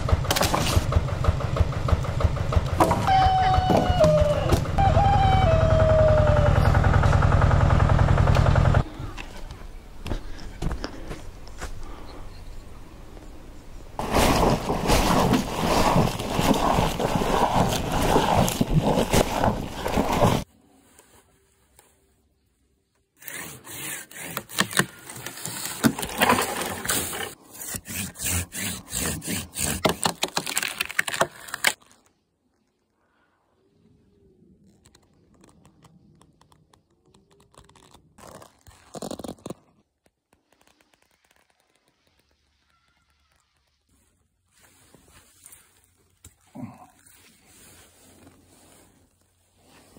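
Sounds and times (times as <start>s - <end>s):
leaves rustling: 13.7s - 22.2s, 40.4s - 49.9s
cow munching leafy greens: 14.0s - 20.4s
dry twigs and leaves crackling: 14.0s - 21.1s, 29.9s - 32.6s.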